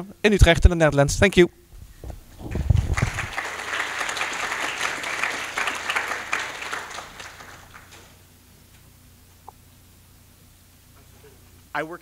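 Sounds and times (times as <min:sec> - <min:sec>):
audience applauding: 0:02.4 - 0:08.2.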